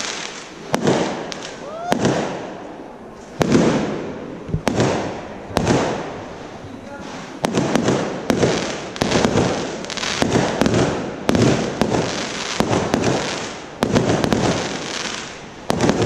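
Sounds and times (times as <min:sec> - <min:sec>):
fireworks bangs and crackling: 0:00.0 - 0:16.0.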